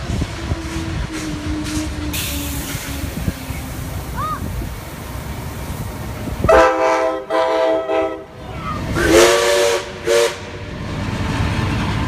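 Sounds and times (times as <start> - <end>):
low rumble of passing train: 0.0 - 12.0
hiss of steam: 1.3 - 6.5
diesel locomotive horn blasts: 6.4 - 10.7
steam locomotive chime whistle: 9.0 - 10.5.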